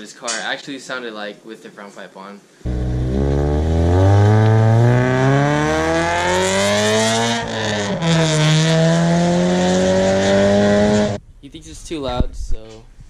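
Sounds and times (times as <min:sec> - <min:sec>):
car exhaust accelerating hard: 0:02.7 - 0:11.2.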